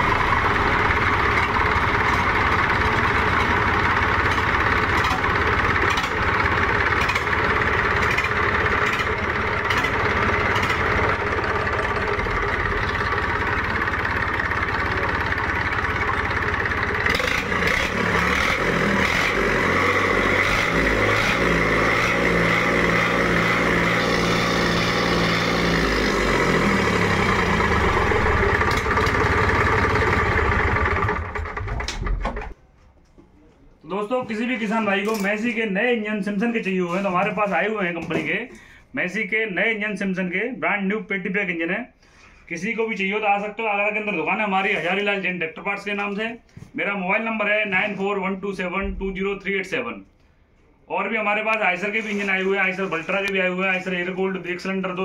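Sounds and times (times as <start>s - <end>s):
diesel engine clattering: 0.0s - 32.6s.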